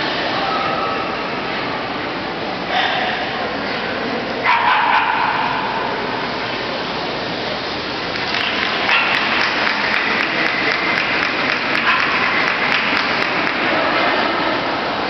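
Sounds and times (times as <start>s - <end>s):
spectators clapping: 8.1s - 14.2s.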